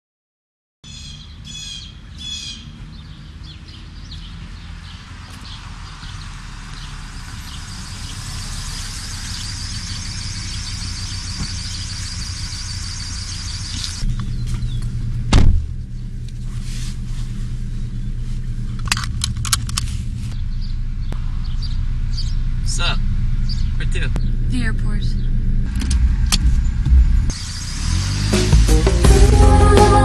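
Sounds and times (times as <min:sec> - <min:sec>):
street ambience: 0:00.8 - 0:30.0
car engine humming: 0:00.9 - 0:30.0
high-pitched squeal: 0:05.6 - 0:14.1, 0:26.1 - 0:30.0
car door shutting: 0:11.3 - 0:11.8, 0:13.6 - 0:15.8.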